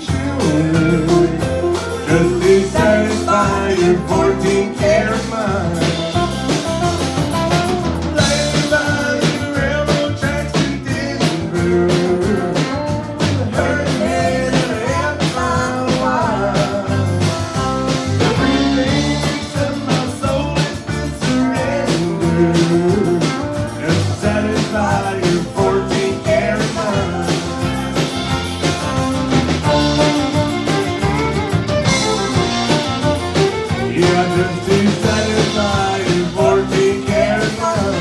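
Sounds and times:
acoustic guitar: 0.0s - 38.0s
drums: 0.0s - 38.0s
electric guitar: 0.0s - 38.0s
fiddle: 27.4s - 36.1s.

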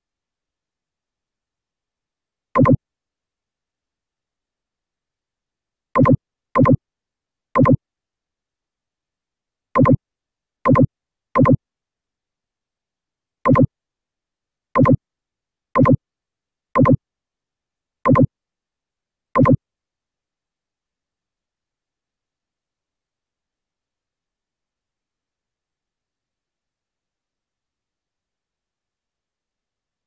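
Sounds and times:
electronic pop: 2.6s - 2.8s, 6.0s - 6.8s, 7.6s - 7.8s, 9.8s - 10.0s, 10.7s - 11.6s, 13.5s - 13.7s, 14.8s - 15.0s, 15.8s - 16.0s, 16.8s - 17.0s, 18.1s - 18.3s, 19.4s - 19.6s.

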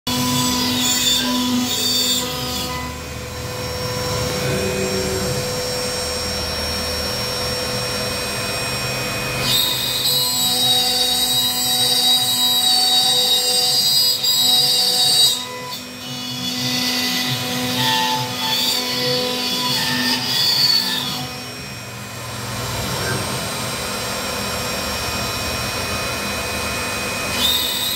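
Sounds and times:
hissing high-pitched cutting noise: 0.1s - 7.7s
router spindle high whine: 0.1s - 27.9s.

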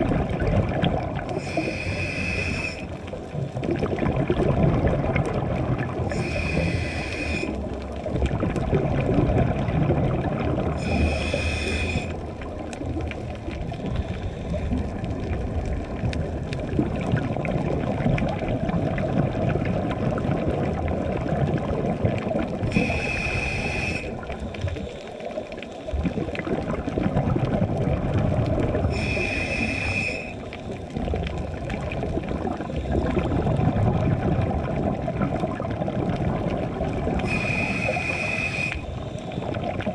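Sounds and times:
bubbling exhaled bubbles: 0.0s - 39.9s
regulator inhalation hiss: 1.4s - 3.0s, 6.1s - 7.6s, 10.8s - 12.2s, 22.7s - 25.0s, 28.9s - 30.8s, 37.2s - 39.5s.

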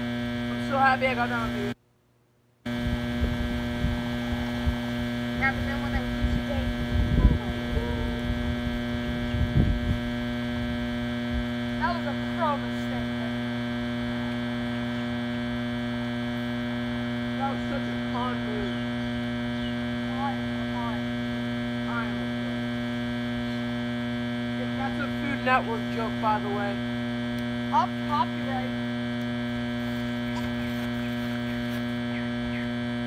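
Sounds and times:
steady electrical hum: 0.0s - 33.0s
low rumbles: 2.7s - 25.2s
bird chirps: 30.2s - 32.8s.

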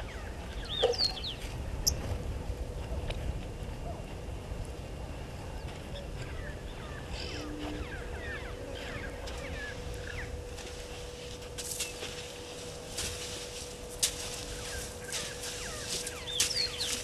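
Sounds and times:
small birds chirping: 0.0s - 2.0s, 5.6s - 10.4s, 14.3s - 17.0s
faint hum: 0.0s - 17.0s.

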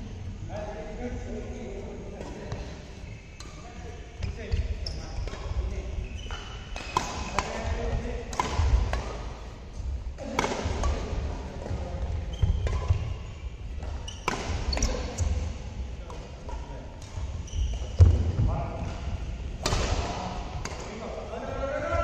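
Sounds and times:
shoes squeaking on court: 4.2s - 7.5s, 11.7s - 15.6s, 16.5s - 18.2s
racket hitting shuttlecock: 5.2s - 5.7s, 6.3s - 9.4s, 10.2s - 11.8s, 12.4s - 13.1s, 13.8s - 15.5s, 18.8s - 21.0s.

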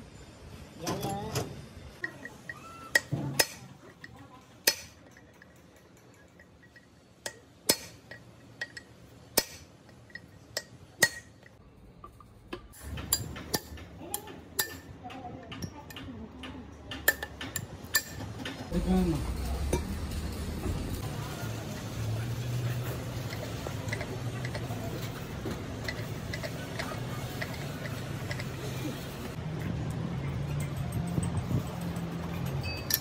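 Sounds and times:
metal tools clinking on gear housing: 2.0s - 16.0s, 21.5s - 33.0s.

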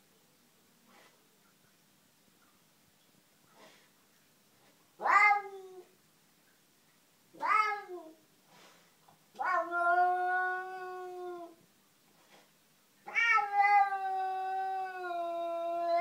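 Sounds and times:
cat yowling: 5.0s - 5.9s, 7.4s - 8.2s, 9.4s - 11.6s, 13.1s - 16.0s.

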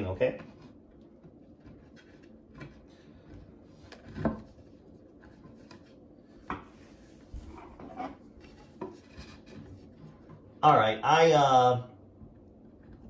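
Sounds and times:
quiet rubbing: 0.3s - 10.6s.

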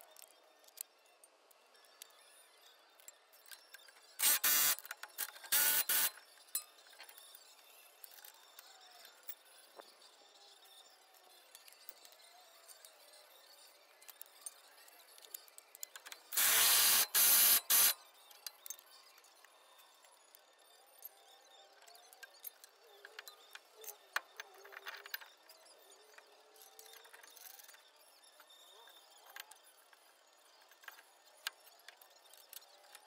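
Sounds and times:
impact wrench bursts: 4.2s - 4.9s, 5.5s - 6.2s, 16.3s - 18.0s.

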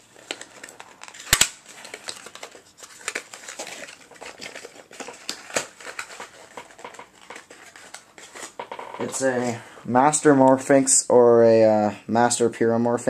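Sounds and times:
cardboard box crinkling and scraping: 1.8s - 9.6s.

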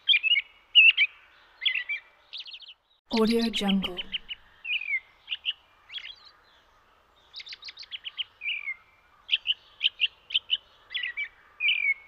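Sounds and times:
songbird chirping: 0.0s - 12.0s.

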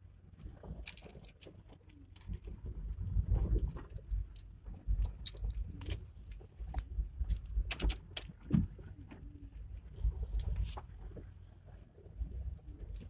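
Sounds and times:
clicks and rattles: 0.4s - 8.8s.

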